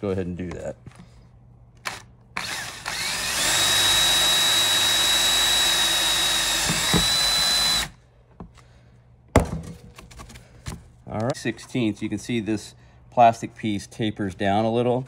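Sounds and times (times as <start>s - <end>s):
power drill high whine: 2.4s - 8.0s.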